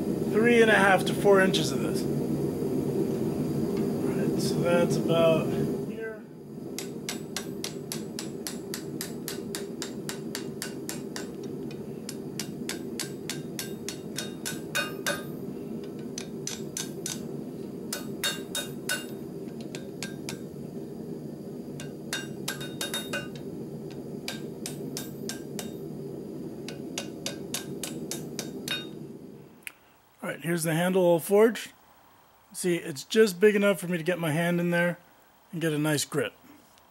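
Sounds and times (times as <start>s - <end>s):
hammer striking metal on anvil: 6.8s - 17.3s, 17.9s - 20.6s, 21.7s - 25.9s, 26.6s - 29.0s.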